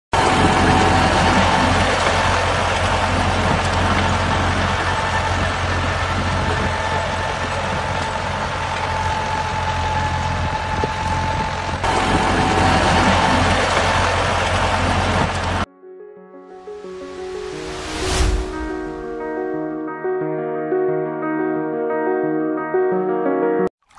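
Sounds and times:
engine-like drone: 0.2 - 15.6.

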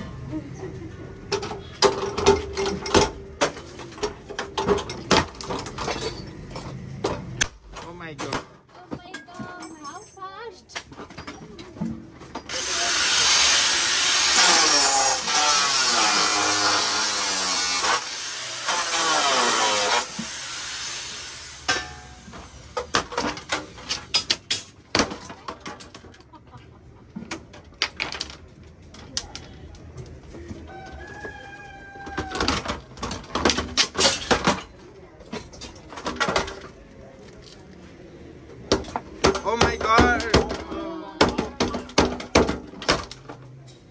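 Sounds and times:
metal clanks and knocks: 1.2 - 12.5, 32.0 - 36.8.

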